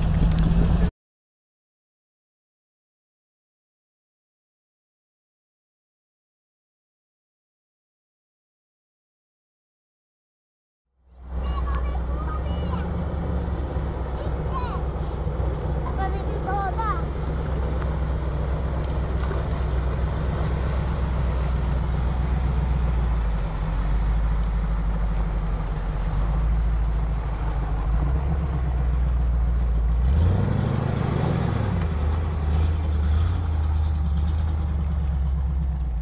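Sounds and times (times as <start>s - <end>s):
car engine under load: 0.0s - 0.9s, 11.1s - 36.0s
water splashing: 11.4s - 35.4s.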